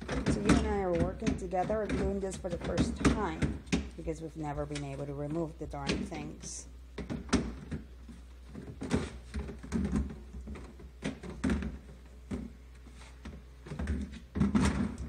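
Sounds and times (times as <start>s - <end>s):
plastic basket knocking and clattering: 8.5s - 12.6s, 13.2s - 15.0s.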